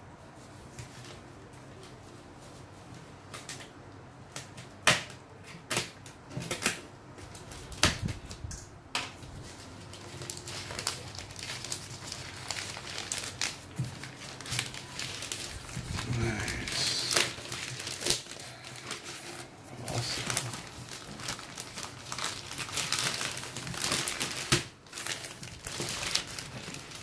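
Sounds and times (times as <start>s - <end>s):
plastic bag snapping and tearing: 4.3s - 9.2s, 9.9s - 19.0s, 19.8s - 27.0s.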